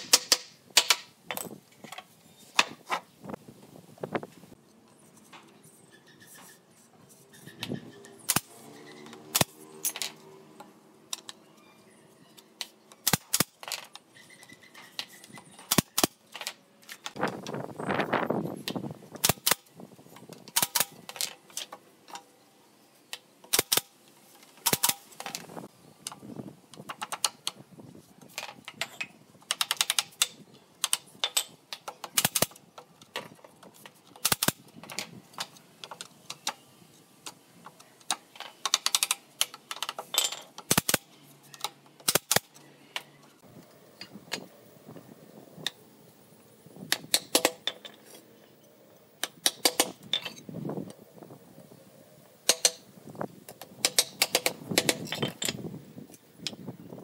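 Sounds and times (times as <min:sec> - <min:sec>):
nail gun firing: 0:00.0 - 0:01.1, 0:13.0 - 0:13.7, 0:15.7 - 0:16.2, 0:19.2 - 0:19.7, 0:20.5 - 0:21.0, 0:23.5 - 0:23.9, 0:24.6 - 0:25.0, 0:32.0 - 0:32.6, 0:34.2 - 0:34.6, 0:40.7 - 0:41.0, 0:42.0 - 0:42.5, 0:49.4 - 0:50.0.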